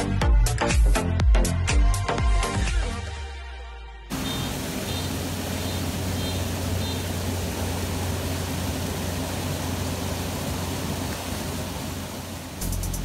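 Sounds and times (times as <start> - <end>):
low water rumble: 4.1 - 13.0
water pouring over weir: 4.1 - 13.0.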